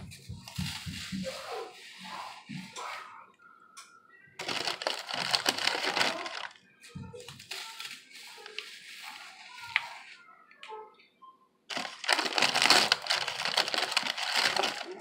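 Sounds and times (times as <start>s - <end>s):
crackers being crushed: 4.4s - 6.6s, 11.7s - 15.0s
plastic sleeve crinkling: 4.4s - 6.6s, 7.2s - 10.1s, 11.7s - 15.0s.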